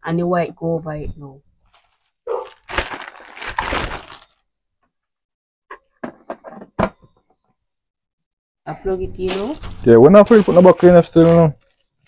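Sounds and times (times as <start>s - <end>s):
plastic parts rustling clatter: 1.7s - 4.4s.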